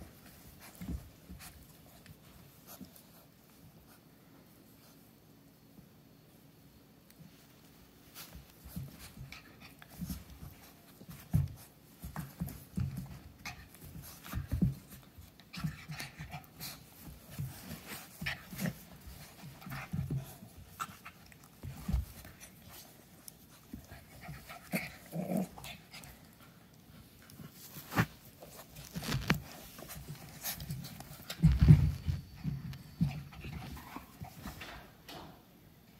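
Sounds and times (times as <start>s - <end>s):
dogs growling and grunting: 24.6s - 25.9s.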